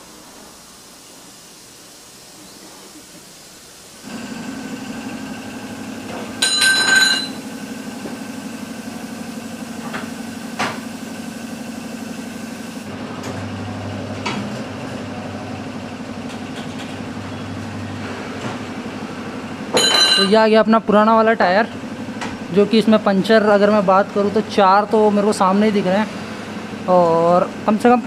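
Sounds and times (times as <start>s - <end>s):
tyre-changing machine motor hum: 2.0s - 20.4s
metallic clank of tools: 6.4s - 7.4s, 19.8s - 20.4s.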